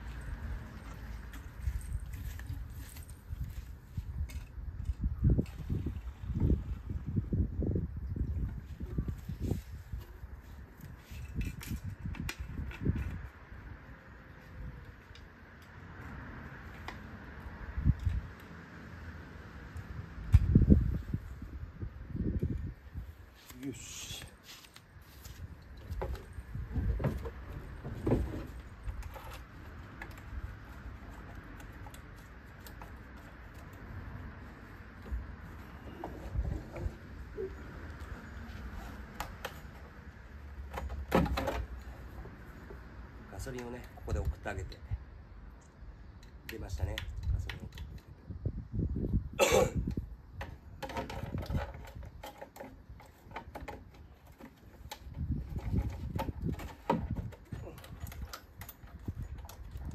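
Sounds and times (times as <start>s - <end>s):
engine parts clicking and knocking: 0.0s - 6.6s, 25.6s - 44.9s, 49.8s - 59.9s.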